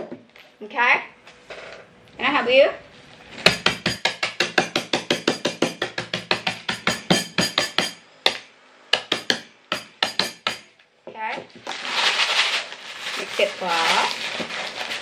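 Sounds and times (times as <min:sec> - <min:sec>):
pestle pounding biscuits in bag: 0:03.4 - 0:08.4, 0:09.0 - 0:10.7.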